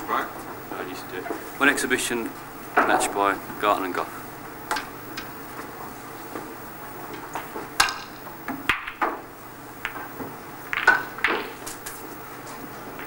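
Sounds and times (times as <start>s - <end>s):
snooker balls clicking: 7.1s - 13.0s.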